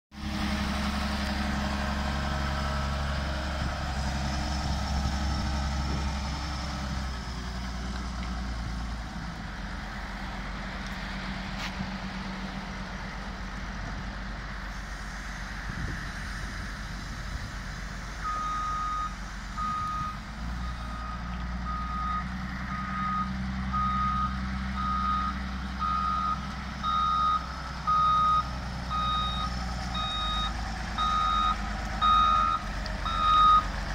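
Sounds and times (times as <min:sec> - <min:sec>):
diesel engine running: 0:00.1 - 0:33.9
reversing alarm beeping: 0:18.2 - 0:33.7.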